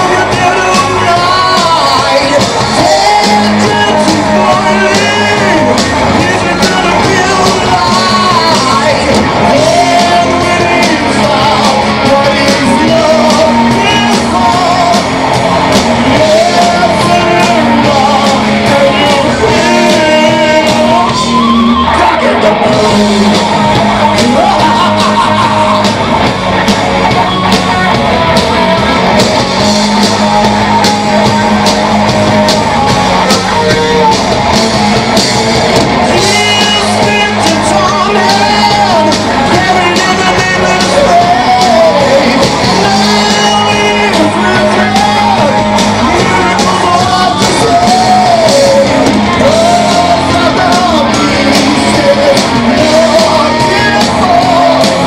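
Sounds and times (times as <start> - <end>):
live rock band playing: 0.0 - 55.0
male lead singer: 0.0 - 55.0.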